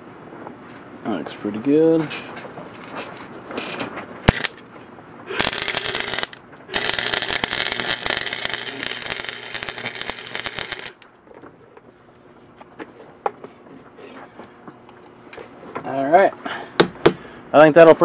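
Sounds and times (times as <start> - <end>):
welder arc crackling: 4.3 - 4.6, 5.4 - 11.1.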